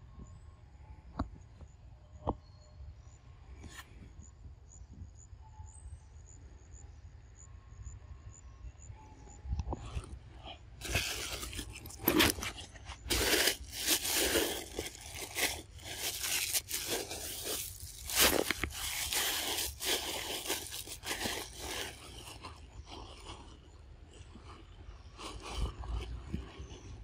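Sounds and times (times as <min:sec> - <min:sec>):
scraping and crunching handling noise: 0:09.8 - 0:27.0.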